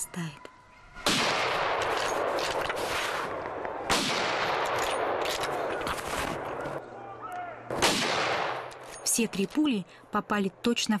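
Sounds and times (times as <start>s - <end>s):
rifle shots with echo: 1.0s - 2.7s, 3.3s - 5.7s, 7.7s - 8.8s.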